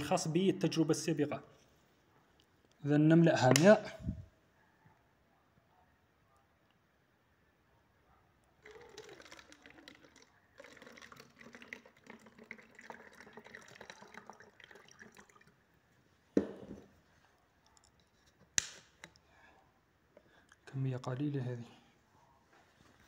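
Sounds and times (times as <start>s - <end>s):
water pouring through funnel: 8.6s - 15.6s
knock: 16.4s - 16.8s.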